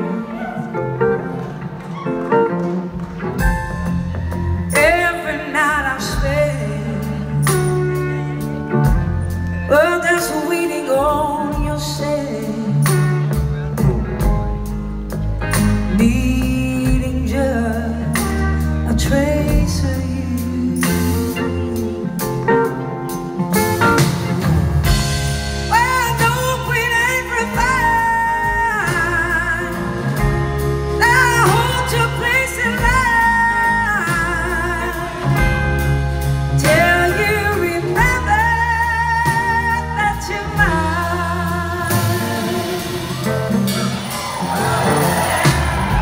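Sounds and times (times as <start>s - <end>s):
bass guitar: 0.0s - 46.0s
drums: 0.0s - 46.0s
woman singing: 4.7s - 9.0s, 9.6s - 13.3s, 15.8s - 22.2s, 25.7s - 35.9s, 36.5s - 43.6s.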